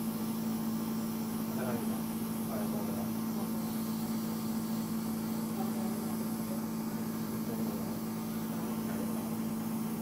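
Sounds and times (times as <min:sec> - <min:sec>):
facial machine humming and hissing: 0:00.0 - 0:10.0.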